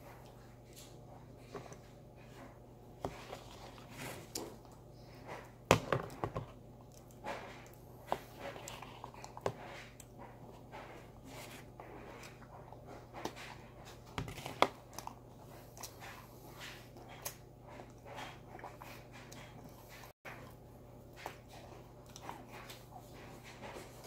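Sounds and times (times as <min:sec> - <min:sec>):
low steady hum: 0:00.0 - 0:24.0
chewing and mouth clicks: 0:21.2 - 0:22.9.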